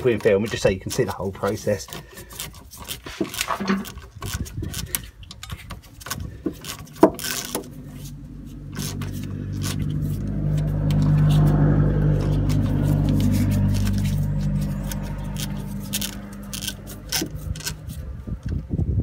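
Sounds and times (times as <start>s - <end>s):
low engine hum: 4.6s - 19.0s.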